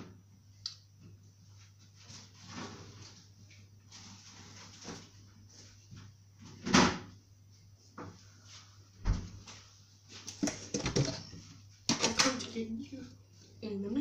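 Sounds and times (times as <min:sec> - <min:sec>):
freezer knocks and rattles: 0:10.3 - 0:12.5.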